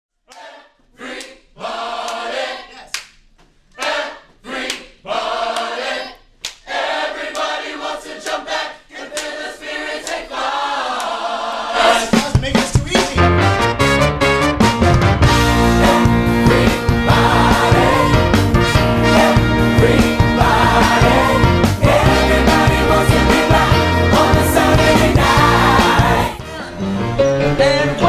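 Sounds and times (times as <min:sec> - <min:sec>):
choir singing: 0:00.3 - 0:02.9, 0:03.8 - 0:12.3, 0:15.3 - 0:28.0
recorded music with strong bass: 0:12.2 - 0:26.4.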